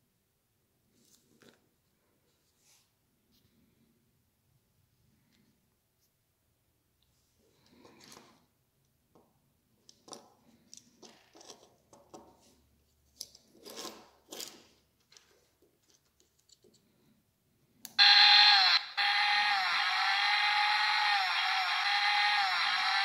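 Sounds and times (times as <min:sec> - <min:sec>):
electronic chainsaw sound effect: 0:18.0 - 0:23.0.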